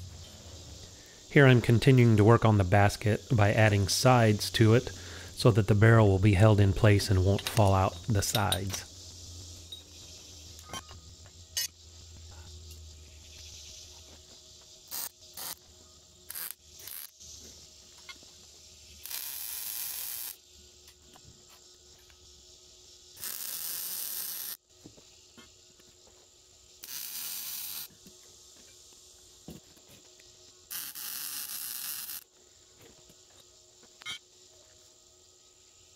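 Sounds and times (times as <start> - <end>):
steel tubes knocking and clinking: 7.4 - 8.8
wire-feed welder hissing: 14.9 - 15.6, 16.3 - 18.0, 18.9 - 20.4, 23.1 - 24.6, 26.8 - 28.0, 30.7 - 32.3.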